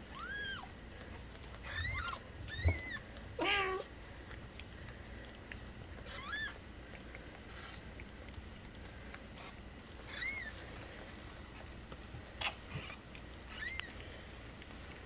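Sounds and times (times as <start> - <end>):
newborn kittens mewing: 0.0 - 0.8, 1.6 - 3.9, 5.9 - 6.6, 7.4 - 8.0, 9.3 - 10.5, 12.4 - 14.0.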